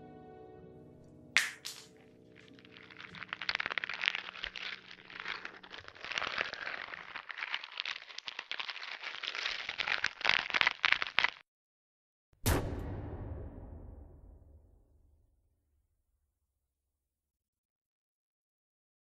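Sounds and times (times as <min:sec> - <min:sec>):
dense crackling and crunching: 0:01.4 - 0:11.4
loud hit with rumbling tail: 0:12.4 - 0:15.2.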